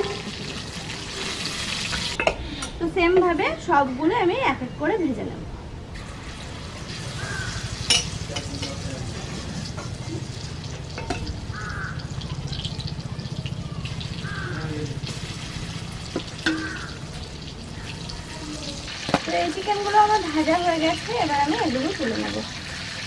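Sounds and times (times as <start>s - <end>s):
chicken deep-frying in oil: 0.0s - 2.2s, 6.0s - 23.0s
utensil clinking against pan: 11.0s - 11.3s, 16.4s - 16.8s.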